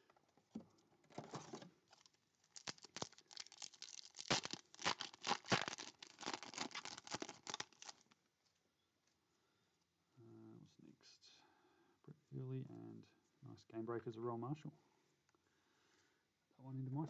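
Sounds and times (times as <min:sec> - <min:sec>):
foil wrapper tearing and crinkling: 0:01.9 - 0:08.2.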